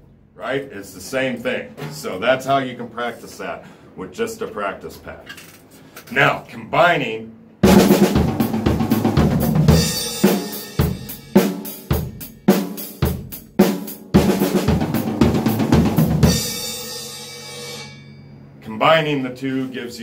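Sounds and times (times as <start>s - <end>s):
cymbal crashes: 7.6s - 13.3s, 14.3s - 18.6s
drum kit playing: 7.6s - 17.8s.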